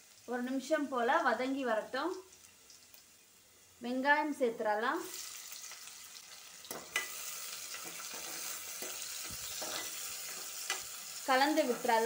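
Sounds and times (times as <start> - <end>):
onions sizzling in hot oil: 0.0 - 12.0
spatula scraping pot: 6.9 - 10.8.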